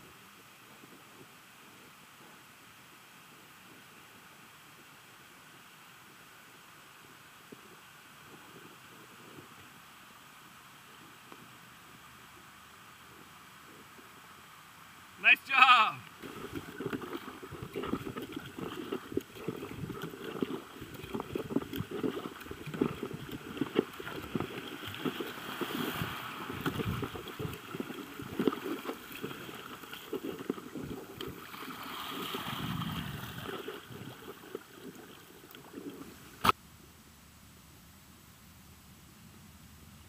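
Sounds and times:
river water rushing and splashing: 14.1s - 36.6s
paddle splashes and knocks: 16.1s - 36.6s.

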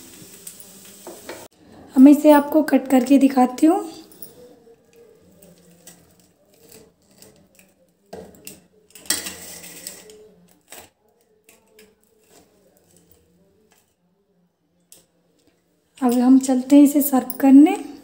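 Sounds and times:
pizza cutter scraping on plate: 5.6s - 7.7s, 9.0s - 10.8s.

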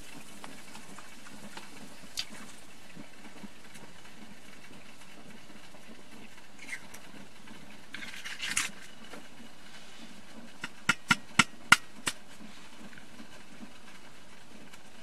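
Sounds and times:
percolator popping: 10.6s - 12.3s.

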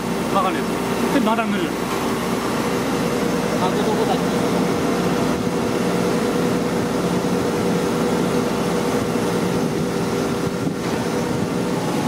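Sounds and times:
machinery droning: 0.0s - 12.0s.

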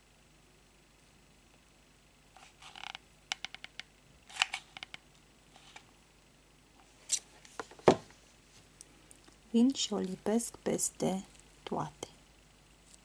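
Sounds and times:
rustles and scrapes: 2.4s - 3.0s, 4.3s - 5.9s.

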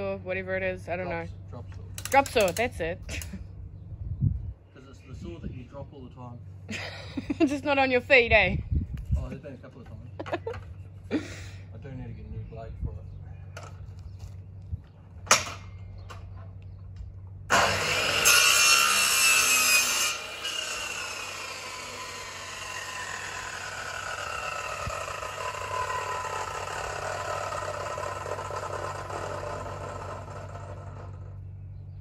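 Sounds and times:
electric saw cutting wood: 17.5s - 31.4s
saw blade spinning down: 17.5s - 31.4s.

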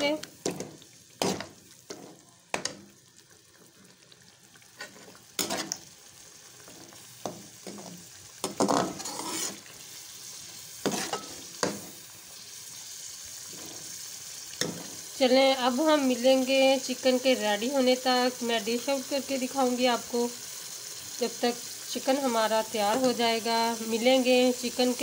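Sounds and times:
food sizzling in a pot: 0.0s - 25.0s
metal spoon scraping a pot: 4.8s - 5.8s, 7.6s - 9.7s, 10.8s - 11.4s.

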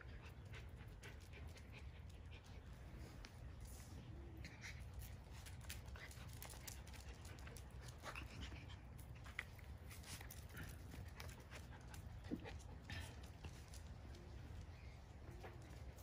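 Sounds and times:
dogs panting: 0.0s - 3.4s, 4.5s - 16.0s
dogs scuffling with clicks: 4.8s - 16.0s.

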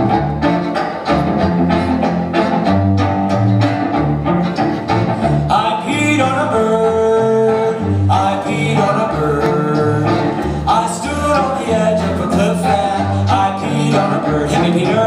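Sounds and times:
cello: 0.0s - 15.0s
electric guitar: 0.0s - 15.0s
fiddle: 0.0s - 15.0s
voices singing: 5.4s - 15.0s.

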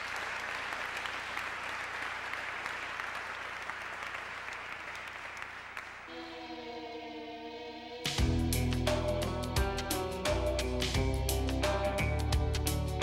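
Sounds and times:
audience applauding: 0.0s - 6.3s
music with long held notes: 6.1s - 13.0s.

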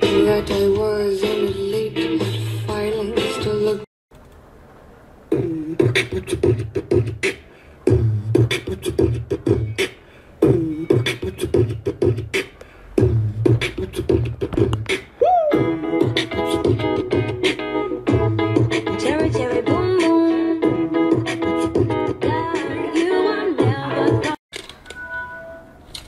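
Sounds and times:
wavering voice over rhythmic beat: 5.3s - 17.0s.

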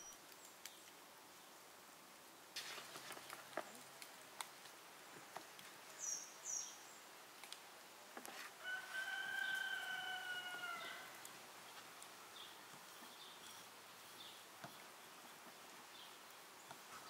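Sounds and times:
rooster crowing: 8.6s - 11.2s.

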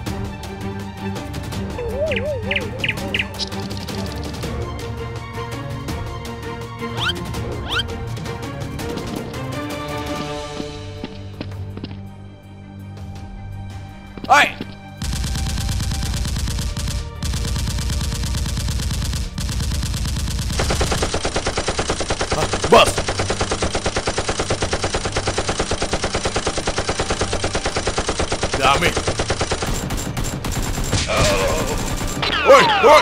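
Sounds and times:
automatic gunfire sound effects: 15.0s - 32.4s.

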